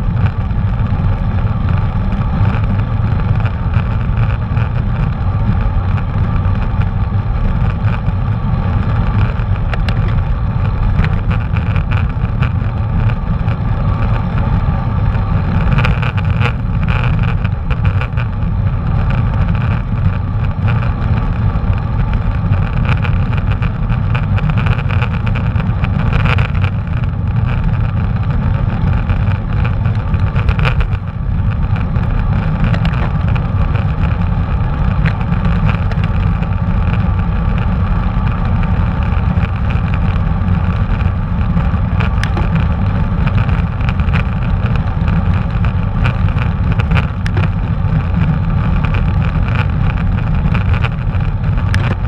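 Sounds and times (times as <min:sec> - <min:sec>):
bicycle road noise: 0:00.0 - 0:52.0.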